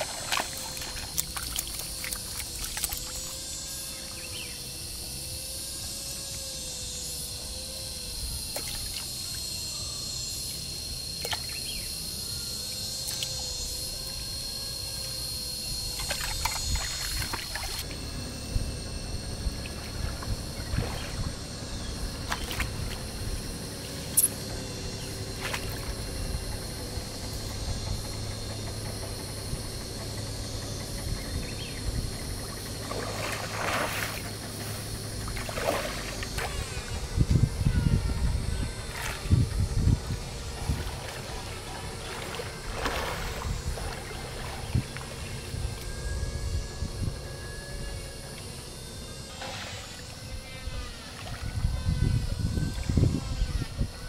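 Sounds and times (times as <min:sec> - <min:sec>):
water splashing and trickling: 0:00.0 - 0:03.4, 0:16.0 - 0:17.9, 0:32.8 - 0:36.8, 0:40.4 - 0:45.2
high-pitched insect buzz: 0:00.0 - 0:54.0.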